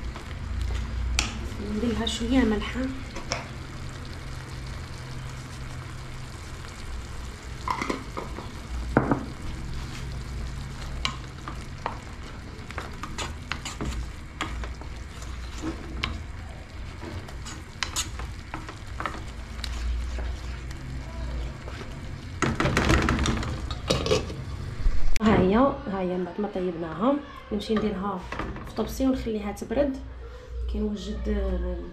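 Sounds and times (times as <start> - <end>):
sauce sizzling in oil: 0.0 - 25.1
wooden spoon scraping metal pot: 12.8 - 16.2, 16.9 - 20.8.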